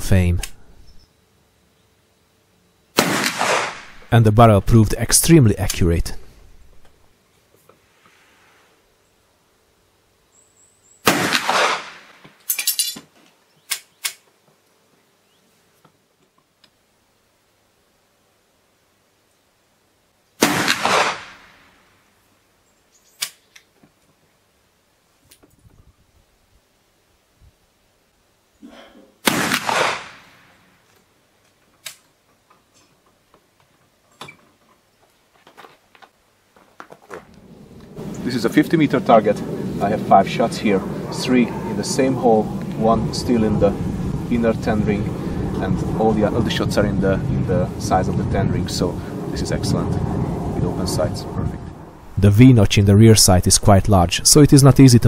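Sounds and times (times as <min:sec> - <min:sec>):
rifle shot: 0:03.0 - 0:04.1, 0:11.0 - 0:12.2, 0:20.4 - 0:21.8, 0:29.2 - 0:30.6
sharp cracks: 0:03.0 - 0:04.2, 0:11.0 - 0:12.6, 0:20.4 - 0:21.9, 0:29.2 - 0:30.6.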